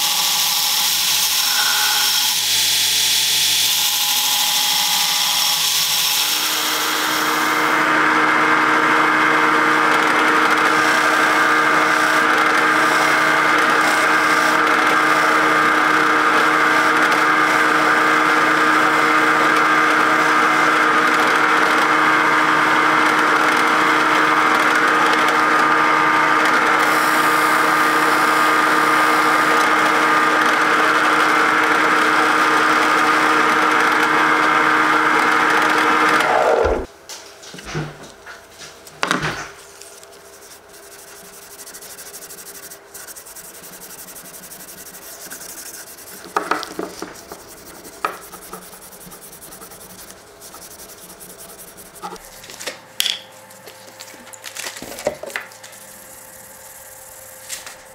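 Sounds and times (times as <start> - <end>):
drill press motor whining: 0.0 - 36.9
cloth rubbing a knife: 39.6 - 52.2.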